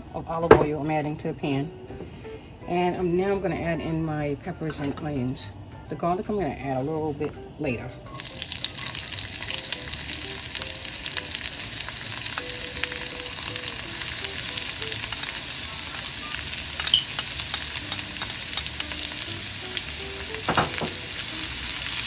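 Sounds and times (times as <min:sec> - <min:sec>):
vegetables sizzling in oil: 0:08.1 - 0:22.0.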